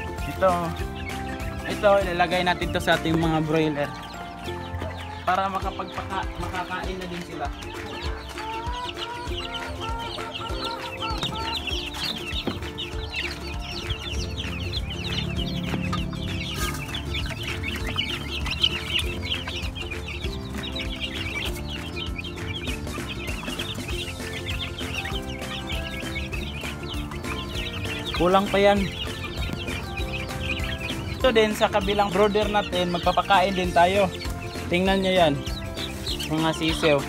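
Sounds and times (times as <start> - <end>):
background music: 0.0 - 37.0
chicks peeping: 0.0 - 37.0.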